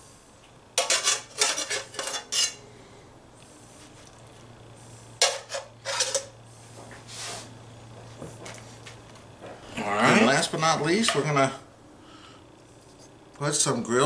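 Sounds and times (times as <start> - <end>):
metal spatula scraping and clinking: 0.8 - 2.6, 5.2 - 6.3.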